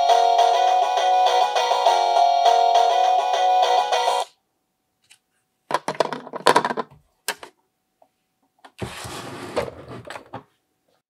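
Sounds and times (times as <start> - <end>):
plastic toy parts clacking: 5.1 - 7.5.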